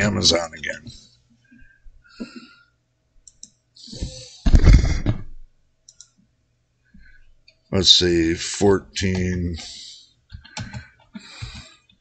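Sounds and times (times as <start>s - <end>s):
computer mouse clicks: 3.2s - 3.6s, 5.8s - 6.2s, 10.3s - 12.0s.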